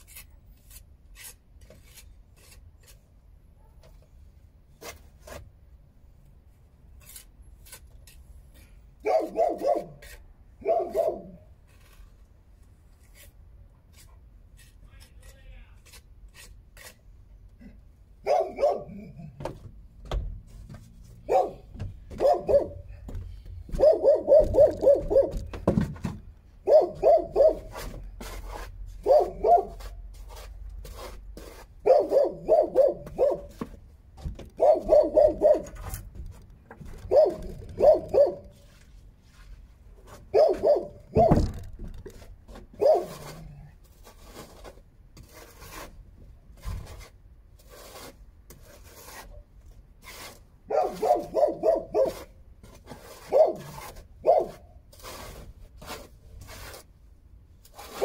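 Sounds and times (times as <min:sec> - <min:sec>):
dog barking: 0:09.0 - 0:10.0, 0:10.6 - 0:11.4, 0:18.2 - 0:19.2, 0:21.3 - 0:21.6, 0:22.2 - 0:22.8, 0:23.8 - 0:25.4, 0:26.6 - 0:27.7, 0:29.0 - 0:29.8, 0:31.8 - 0:33.5, 0:34.6 - 0:35.8, 0:37.1 - 0:38.5, 0:40.3 - 0:41.3, 0:42.8 - 0:43.4, 0:50.7 - 0:52.3, 0:53.3 - 0:54.6.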